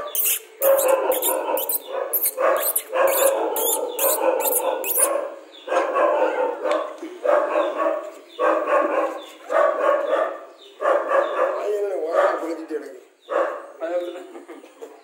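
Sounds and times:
puppies yelping: 0:00.0 - 0:06.6.

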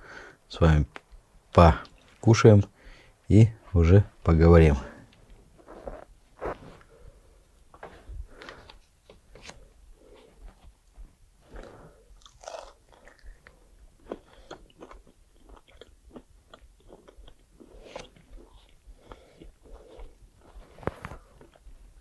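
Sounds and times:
man chewing and biting meat: 0:11.6 - 0:22.0.

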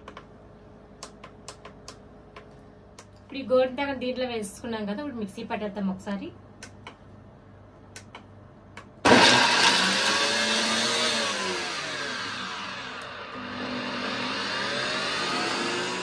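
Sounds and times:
mixer grinder running: 0:09.0 - 0:16.0.

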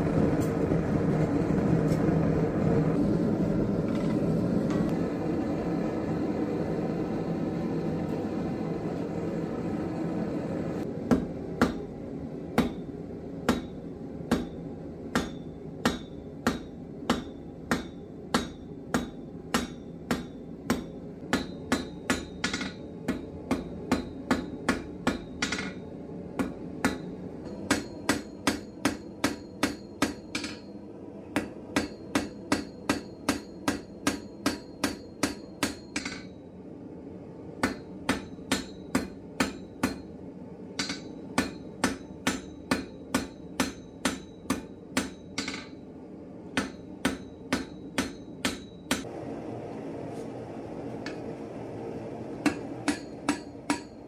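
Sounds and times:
low rumble: 0:00.0 - 0:11.0
hammer striking anvil: 0:11.1 - 0:11.9, 0:12.6 - 0:25.8, 0:26.4 - 0:36.4, 0:37.6 - 0:40.1, 0:40.8 - 0:45.8, 0:46.6 - 0:49.1, 0:52.4 - 0:54.0.

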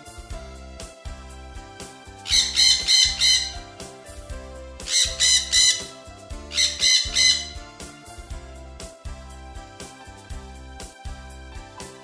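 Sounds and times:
light keyboard music loop: 0:00.0 - 0:12.0
cartoon bird calls: 0:02.3 - 0:03.6, 0:04.9 - 0:07.6.

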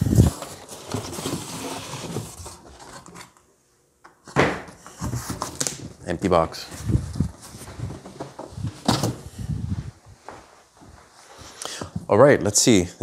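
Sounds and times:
cardboard rustling and scraping: 0:00.0 - 0:03.4, 0:04.7 - 0:06.0, 0:06.6 - 0:09.4.

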